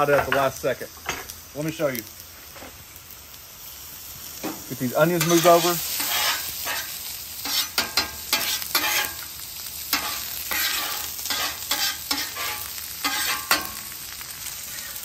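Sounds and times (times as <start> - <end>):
food sizzling in fat: 0.0 - 15.0
metal spatula scraping a griddle: 5.2 - 15.0.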